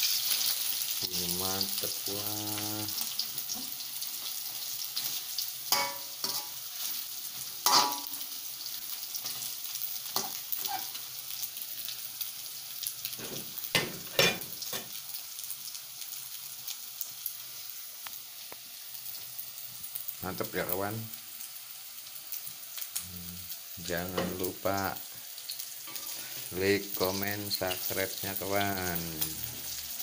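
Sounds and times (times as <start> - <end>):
food sizzling in a wok: 0.0 - 30.0
spatula scraping wok: 5.0 - 8.2, 25.8 - 26.5.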